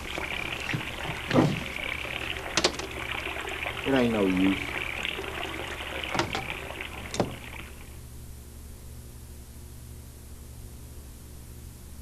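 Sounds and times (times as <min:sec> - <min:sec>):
low steady hum: 0:00.0 - 0:12.0
sharp knocks: 0:00.2 - 0:01.8.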